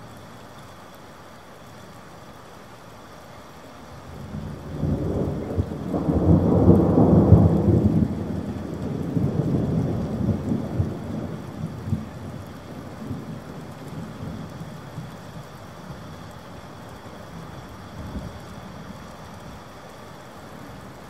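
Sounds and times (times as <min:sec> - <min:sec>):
steady rain: 0:00.0 - 0:21.0
thunder rumbling: 0:04.2 - 0:17.0.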